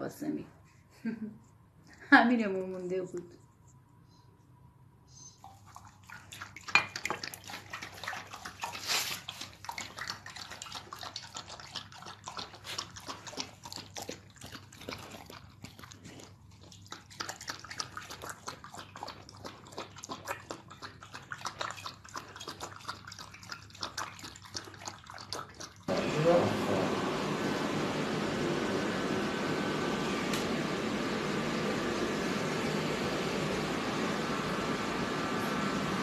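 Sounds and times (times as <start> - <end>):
dog lapping and chewing: 5.4 - 26.4.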